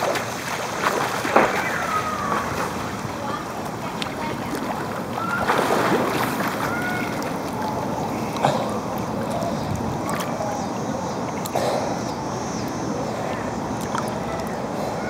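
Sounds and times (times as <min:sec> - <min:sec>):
sharp water splash: 0:00.0 - 0:10.4
water sloshing and lapping: 0:00.0 - 0:15.0.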